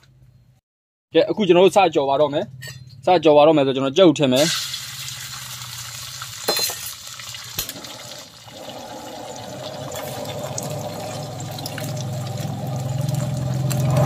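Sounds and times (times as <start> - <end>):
egg sizzling in hot oil: 4.4 - 14.0.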